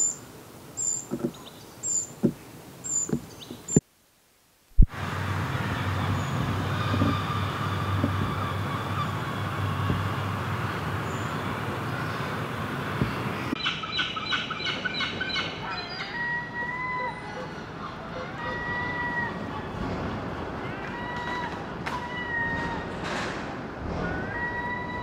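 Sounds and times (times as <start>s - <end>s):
low background rumble: 4.7s - 13.6s
gulls calling: 4.8s - 23.0s, 24.0s - 25.0s.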